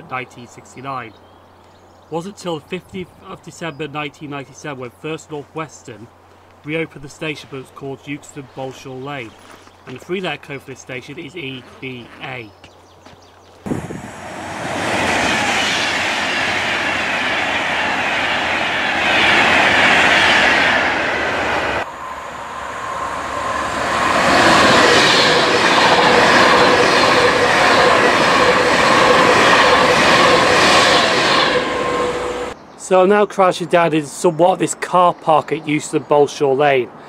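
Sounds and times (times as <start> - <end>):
electric train passing: 13.7 - 32.6
train whine: 13.7 - 32.6
wheel-on-rail noise: 14.4 - 32.6.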